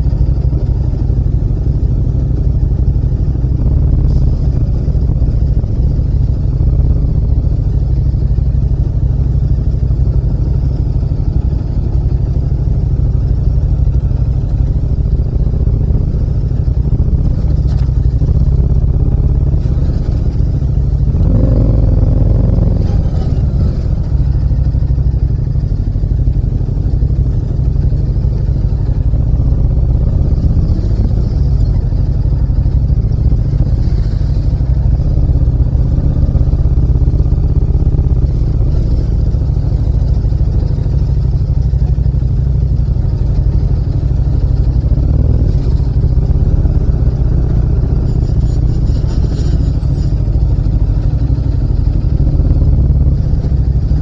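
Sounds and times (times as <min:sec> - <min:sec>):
motorcycle engine deep rumble: 0:00.0 - 0:54.0.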